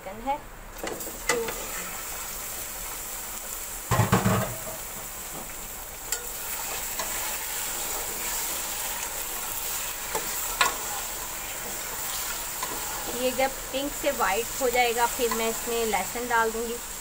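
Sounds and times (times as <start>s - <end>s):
chicken sizzling in pot: 0.8s - 17.0s
metal spoon knocking and scraping pot: 3.9s - 4.8s.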